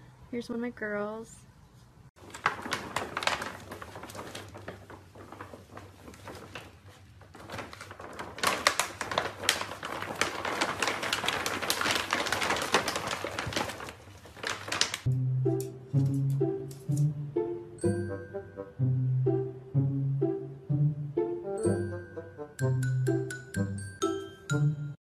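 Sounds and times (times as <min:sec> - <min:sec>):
plastic bag crinkling: 0:02.2 - 0:15.1.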